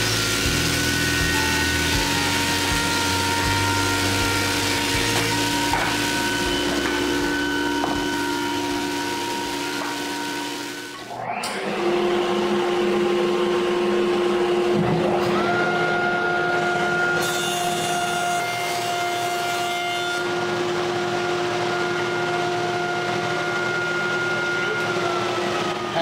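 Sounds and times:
board being planed: 0.0s - 10.4s, 14.6s - 24.7s
motor pitch rising: 0.0s - 17.8s, 20.3s - 26.0s
jointer and dust collector hum: 0.0s - 26.0s.

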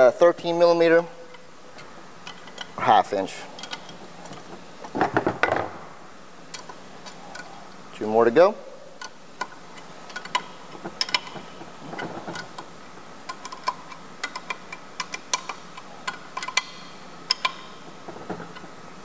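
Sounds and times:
hand ratchet clicking: 9.0s - 12.7s, 13.3s - 18.7s.

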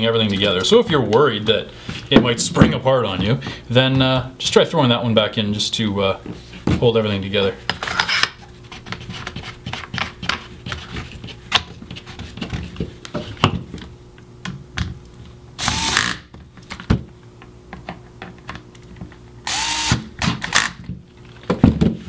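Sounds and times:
electric screwdriver whine: 15.6s - 16.2s, 19.4s - 20.8s.

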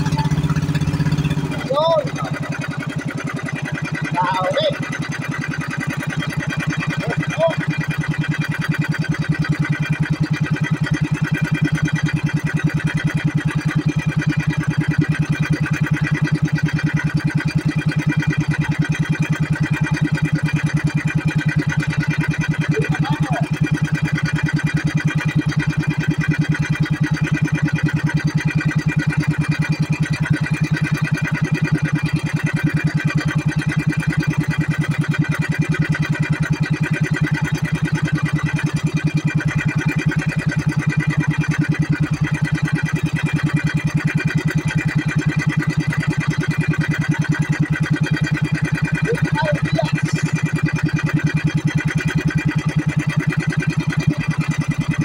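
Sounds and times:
boat engine running: 0.0s - 55.0s.

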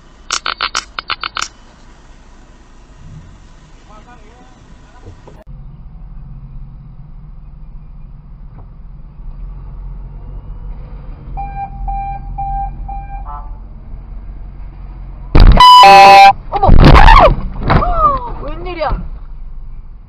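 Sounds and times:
car engine idling: 0.0s - 9.4s
car horn toots: 11.4s - 13.6s, 15.4s - 16.4s.

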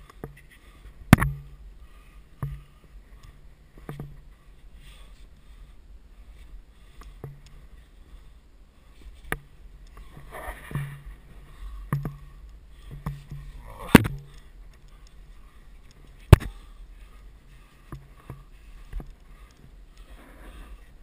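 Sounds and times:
sharp knocks against rock: 1.1s - 1.5s, 13.0s - 14.4s, 16.2s - 16.6s.

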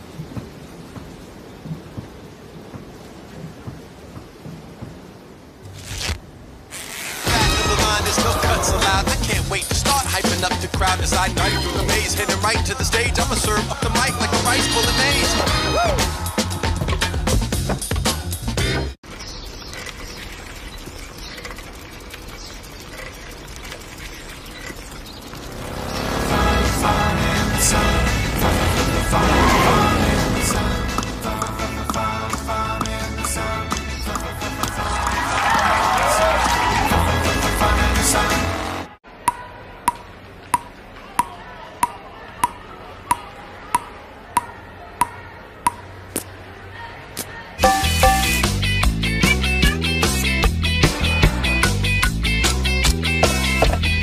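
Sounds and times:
bicycle chain ticking and squeaking: 19.1s - 26.2s
table tennis ball bouncing on paddle: 39.2s - 45.9s, 47.6s - 48.4s
loud pitched sound: 47.6s - 48.6s.

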